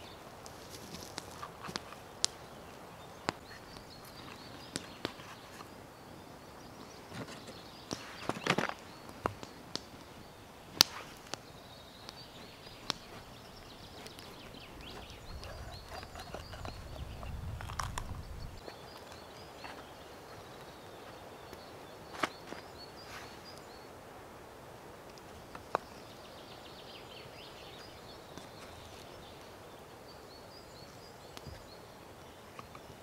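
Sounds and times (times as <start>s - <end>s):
birds chirping: 0.0s - 33.0s.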